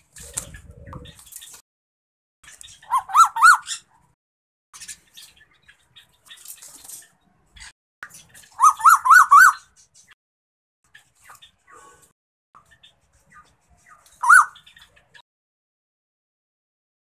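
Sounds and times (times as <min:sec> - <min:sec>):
koel calling: 0:14.2 - 0:14.6.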